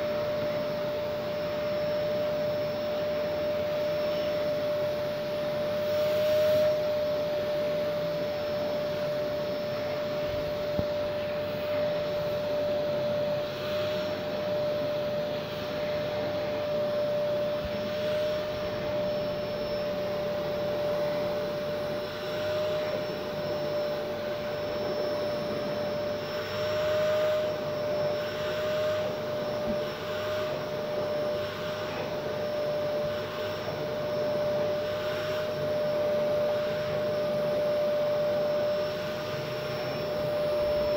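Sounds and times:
vacuum cleaner whining: 0.0s - 40.9s.

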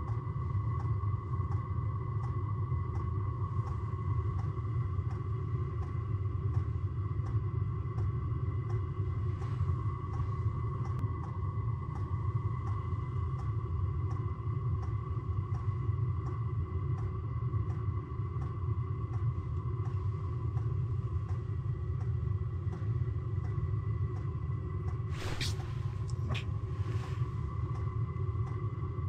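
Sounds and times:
soft ticks: 0.0s - 8.8s, 10.8s - 13.5s, 14.1s - 16.4s, 17.7s - 24.3s
steady low rumble: 0.0s - 29.0s
brief rustles: 25.2s - 26.4s.

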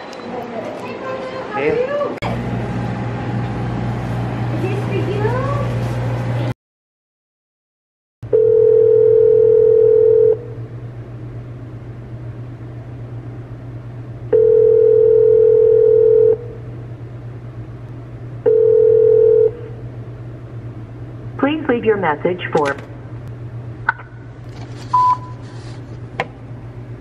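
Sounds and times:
telephone ringback tone: 8.3s - 10.5s, 14.3s - 16.4s, 18.4s - 19.7s.

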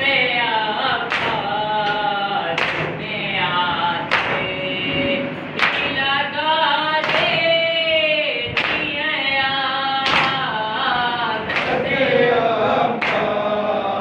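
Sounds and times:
chorus of voices: 0.0s - 14.0s.

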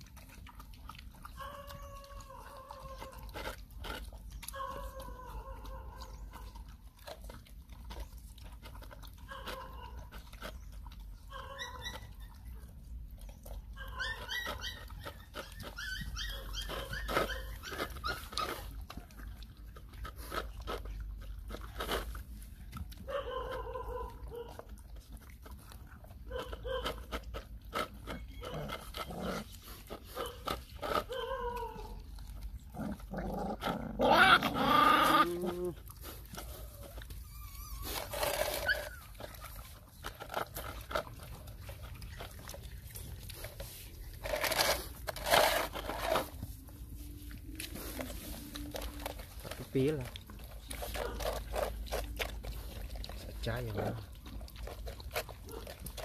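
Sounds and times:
puppies chewing and licking: 0.0s - 56.0s
puppies whining and growling: 0.0s - 56.0s
puppy crying: 11.3s - 12.7s, 13.7s - 18.8s, 31.0s - 32.1s, 33.5s - 35.9s, 36.7s - 39.4s.

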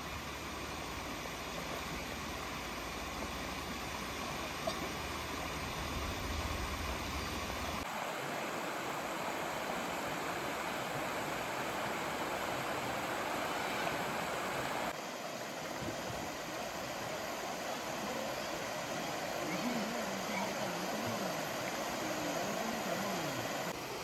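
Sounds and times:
river rushing over rocks: 0.1s - 24.0s
low rumble: 5.6s - 7.8s.

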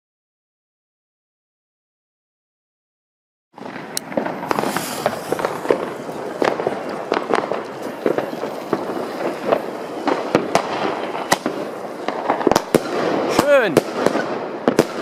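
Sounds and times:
distant fireworks crackling: 3.6s - 15.0s
loud firecracker bangs: 3.6s - 15.0s.

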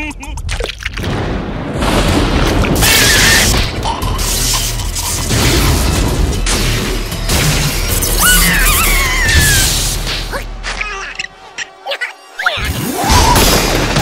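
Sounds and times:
high squealing cry: 8.1s - 9.8s.

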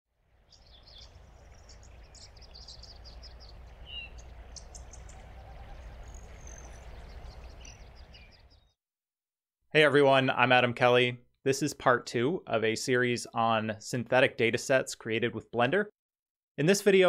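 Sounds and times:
small birds chirping: 0.3s - 8.8s.

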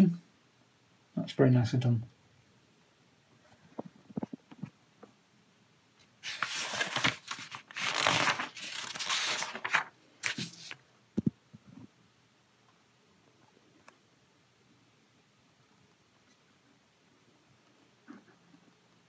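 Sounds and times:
paper pages rustling: 6.2s - 10.8s.

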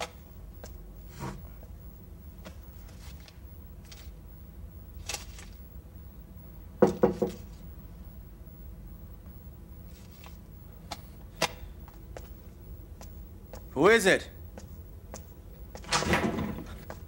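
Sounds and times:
knocks on a door: 6.8s - 7.4s.

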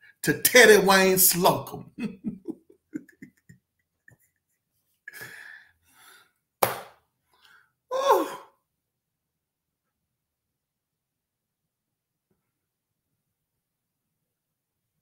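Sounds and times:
man laughing: 1.4s - 5.3s
breathy exhale: 5.1s - 6.3s
sigh falling in pitch: 7.9s - 8.6s.

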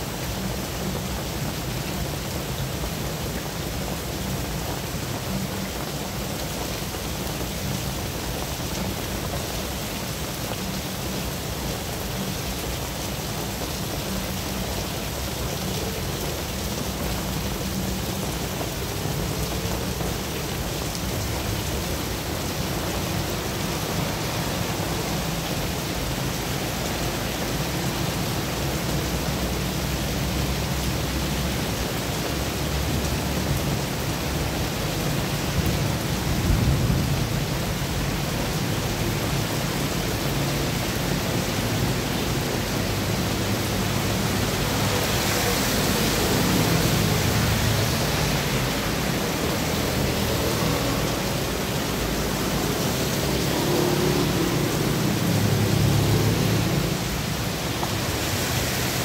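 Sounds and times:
heavy rain falling: 0.0s - 59.0s
vehicles passing on wet road: 0.0s - 59.0s.

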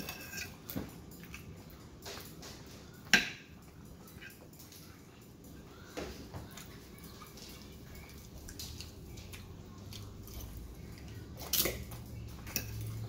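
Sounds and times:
fork scraping a ceramic plate: 0.0s - 0.7s
chewing and mouth sounds: 3.6s - 13.0s.

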